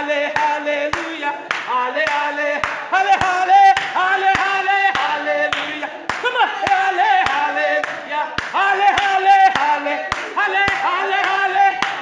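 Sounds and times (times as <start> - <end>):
congregation singing: 0.0 - 12.0
rhythmic hand clapping: 0.0 - 12.0.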